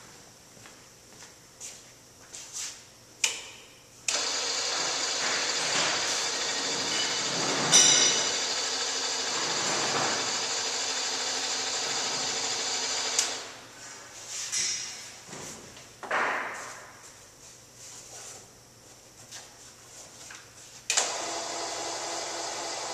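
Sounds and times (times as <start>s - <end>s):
window motor whirring: 4.1s - 13.6s, 20.9s - 22.9s.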